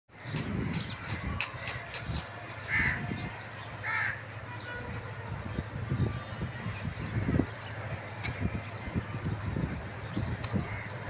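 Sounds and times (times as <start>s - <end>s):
crow cawing: 2.7s - 3.0s, 3.8s - 4.2s.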